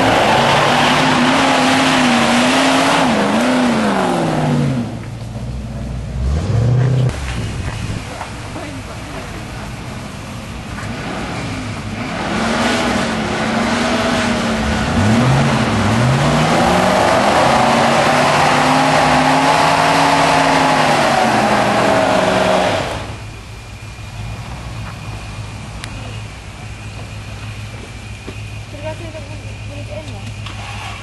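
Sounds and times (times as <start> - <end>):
engine revving hard: 0.0 - 5.0, 6.2 - 7.2, 10.8 - 23.2.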